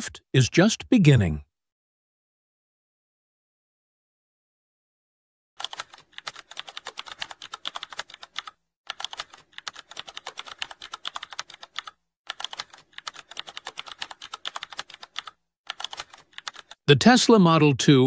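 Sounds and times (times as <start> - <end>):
rapid keyboard typing: 5.6 - 16.8.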